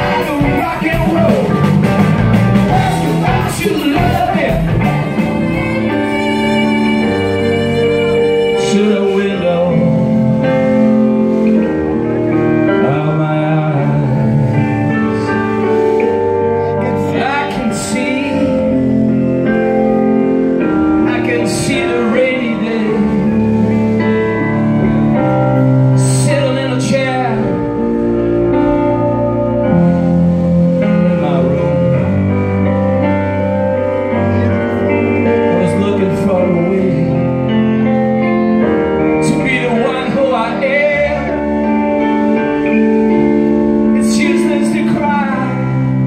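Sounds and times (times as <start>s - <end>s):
drums and cymbal hits: 0.0s - 5.9s
violin lines: 0.0s - 12.4s
man singing: 0.0s - 19.3s, 20.7s - 28.1s, 29.7s - 32.9s, 34.0s - 38.2s, 39.0s - 46.0s
electric guitar: 0.0s - 46.0s.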